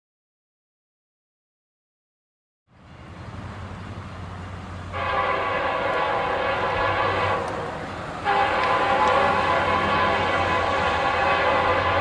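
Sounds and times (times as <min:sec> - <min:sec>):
diesel locomotive engines rumbling: 0:02.7 - 0:12.0
train air horn blasts: 0:04.9 - 0:12.0.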